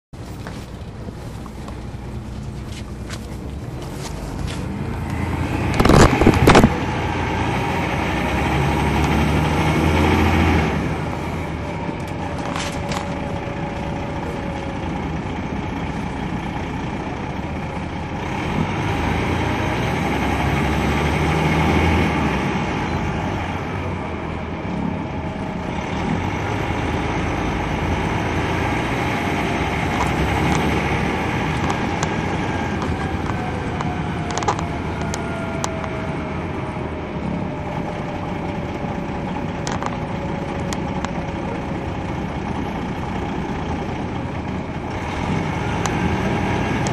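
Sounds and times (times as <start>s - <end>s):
bus diesel engine running: 0.1s - 46.9s
loud clatter: 5.7s - 6.9s.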